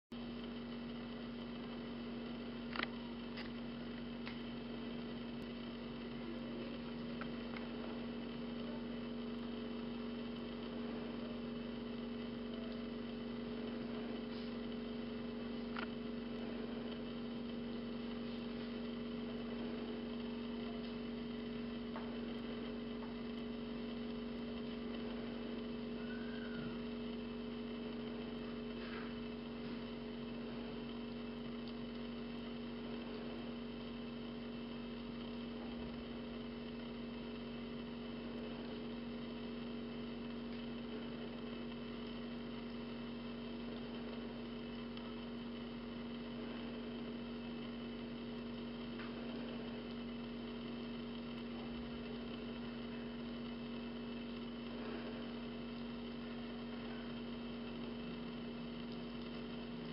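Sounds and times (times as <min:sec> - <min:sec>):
electrical hum: 0:00.1 - 0:59.9
faint clicks: 0:31.5 - 0:32.1, 0:57.6 - 0:59.9.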